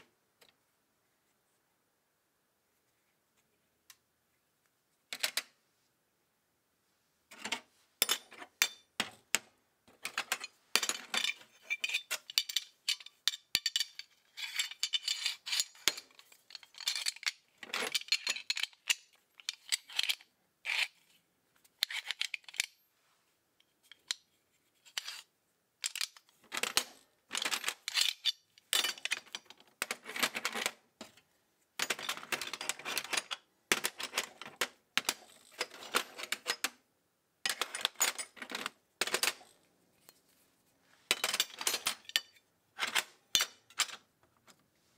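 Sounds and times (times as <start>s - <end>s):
steel sockets clinking in metal tin: 10.1s - 20.2s.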